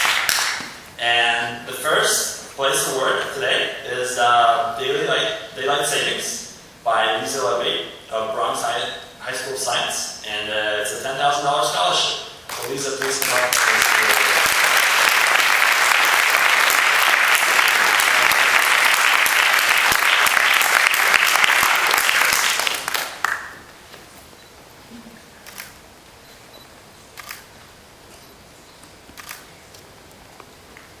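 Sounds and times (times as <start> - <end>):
audience applauding: 0.0 - 0.8, 12.5 - 23.7
camera shutter clicks: 27.2 - 27.5, 29.2 - 29.5.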